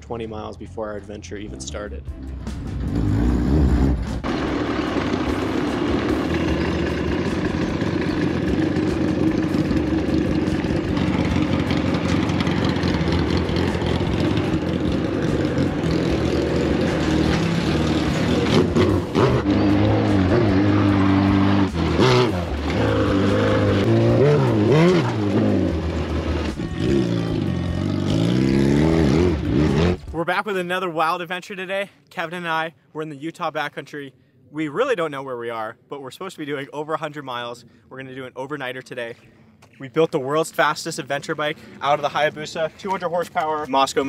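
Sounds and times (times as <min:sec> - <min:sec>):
motorcycle engine revving: 0:02.4 - 0:30.2.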